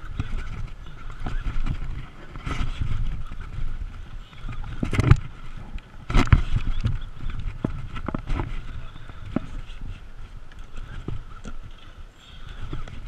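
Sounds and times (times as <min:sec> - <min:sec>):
water slapping boat hull: 0:00.0 - 0:11.9
wind buffeting microphone: 0:00.0 - 0:13.0.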